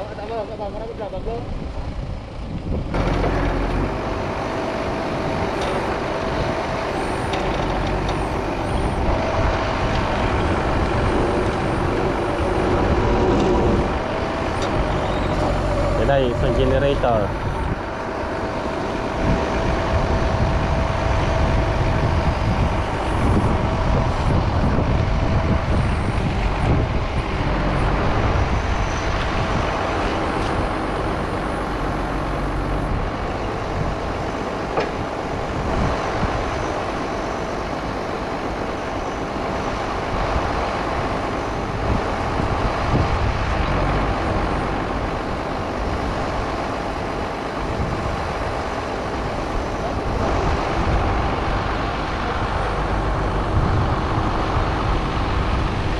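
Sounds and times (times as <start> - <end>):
generator running: 0.0 - 55.9.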